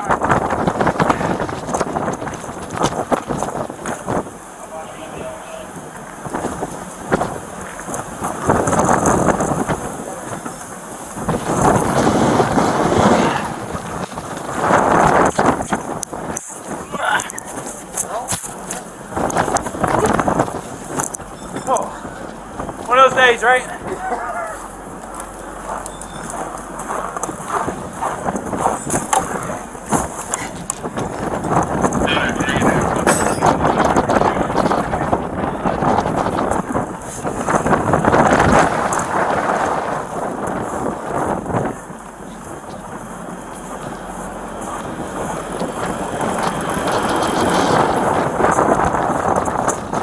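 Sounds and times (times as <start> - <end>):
strong wind buffeting microphone: 0.0 - 50.0
footsteps crunching in snow: 24.0 - 32.0.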